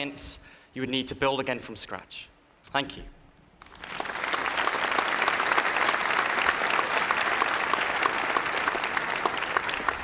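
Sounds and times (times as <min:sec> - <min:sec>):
audience applauding: 0:03.6 - 0:10.0.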